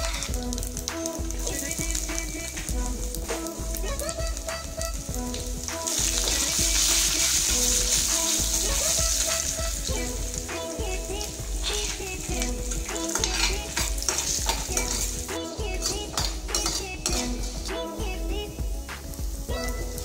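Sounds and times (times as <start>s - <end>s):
oil sizzling in a pan: 0.0s - 20.0s
metal ladle scraping a pan: 11.6s - 17.7s.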